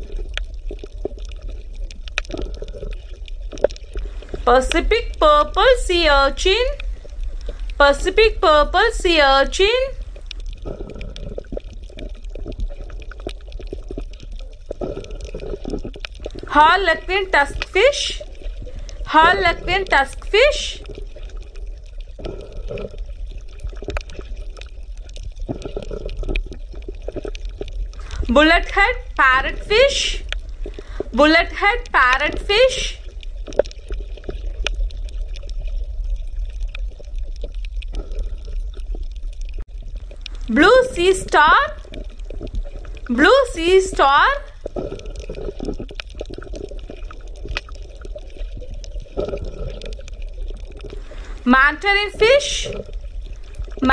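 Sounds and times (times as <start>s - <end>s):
small underwater clicks: 0.0s - 5.8s, 6.7s - 7.8s, 10.0s - 16.5s, 19.9s - 28.3s, 30.2s - 31.2s, 31.8s - 40.6s, 41.3s - 51.5s, 52.4s - 53.9s
water bubbling and crackling: 0.0s - 53.9s
steady low rumble: 28.0s - 33.4s.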